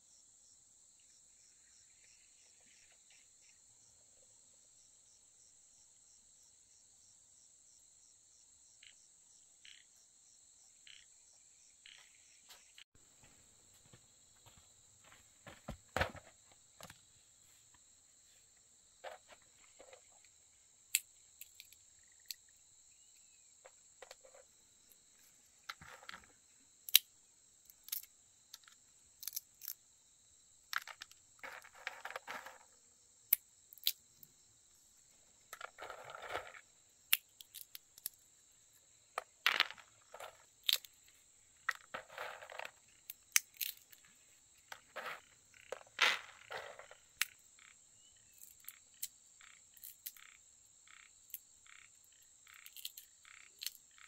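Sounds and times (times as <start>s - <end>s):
insects droning: 0.0s - 54.0s
rough scraping noises: 31.4s - 32.8s, 35.6s - 36.7s, 41.7s - 42.9s, 44.0s - 47.1s.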